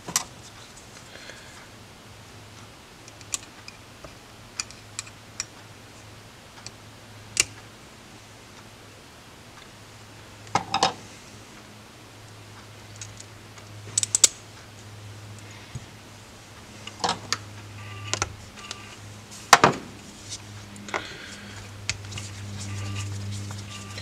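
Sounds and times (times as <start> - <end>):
steady low hum: 0.0 - 24.0
metal parts clicking and clinking: 14.0 - 14.4.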